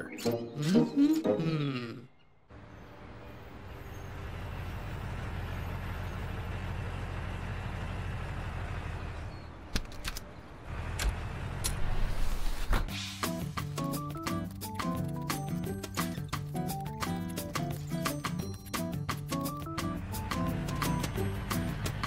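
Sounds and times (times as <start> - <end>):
cartoon fire truck engine hum: 2.5 - 12.6, 13.4 - 22.0
light music: 12.9 - 22.0.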